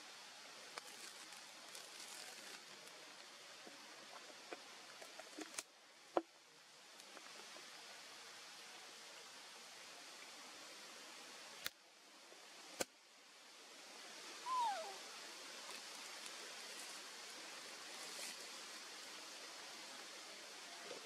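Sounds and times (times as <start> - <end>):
forest ambience hiss: 0.0 - 21.0
short falling animal call: 14.4 - 15.0.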